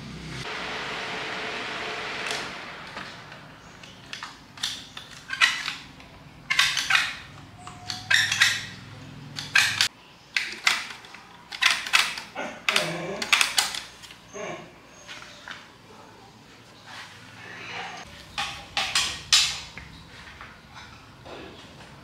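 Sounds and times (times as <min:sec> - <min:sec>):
metal parts and tools clinking: 0:03.6 - 0:14.3, 0:18.0 - 0:19.8.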